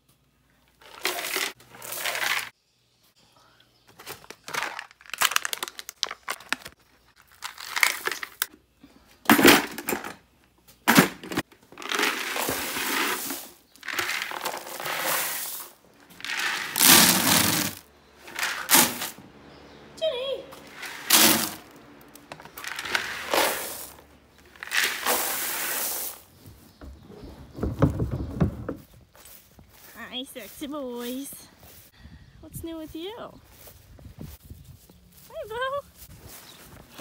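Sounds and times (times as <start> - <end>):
dry feed poured from buckets: 0.8 - 2.5, 11.8 - 19.2, 20.6 - 26.4.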